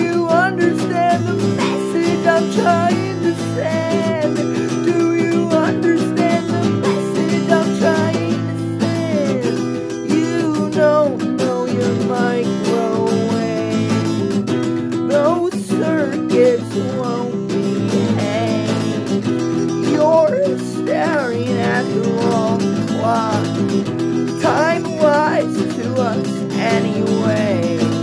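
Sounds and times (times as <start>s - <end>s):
wordless voice singing: 0.0s - 14.3s, 14.9s - 28.0s
acoustic guitar strumming: 0.0s - 28.0s.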